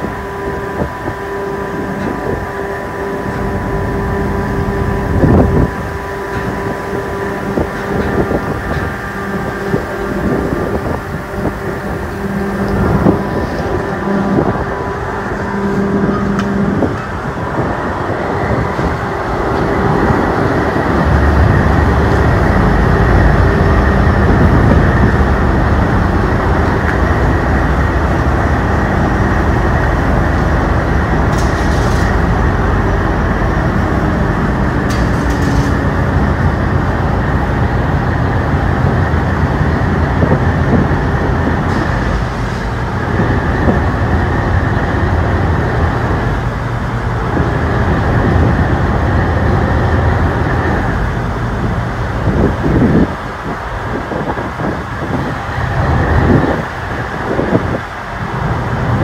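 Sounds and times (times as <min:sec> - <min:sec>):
ferry engine droning: 0:00.0 - 0:59.0.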